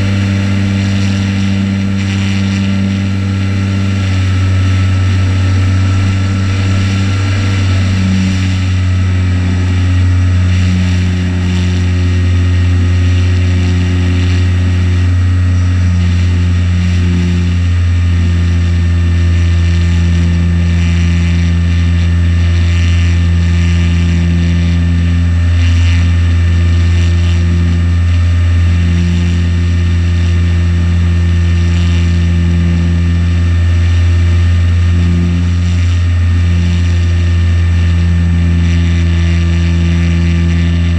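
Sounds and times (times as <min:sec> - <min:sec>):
electric motor and propeller drone: 0:00.0 - 0:40.9.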